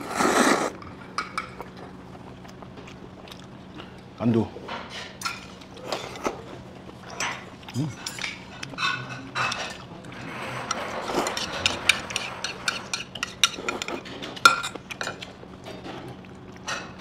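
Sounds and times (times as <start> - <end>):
utensils clinking on metal bowls: 4.7 - 6.4, 7.0 - 17.0.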